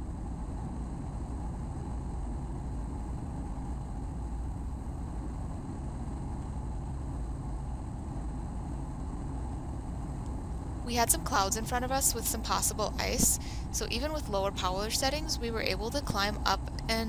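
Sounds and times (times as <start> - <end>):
propeller airplane engine drone: 0.0 - 17.0.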